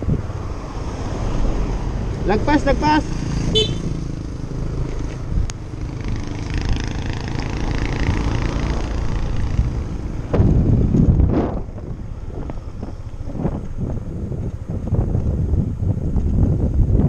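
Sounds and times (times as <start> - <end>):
wind and road noise: 0.0 - 17.0
motorcycle engine running: 2.7 - 11.7.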